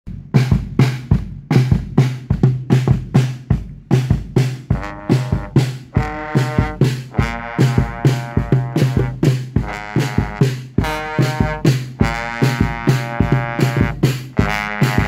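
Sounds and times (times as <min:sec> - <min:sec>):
marching drums beat: 0:00.1 - 0:15.0
trombones playing: 0:04.6 - 0:15.0.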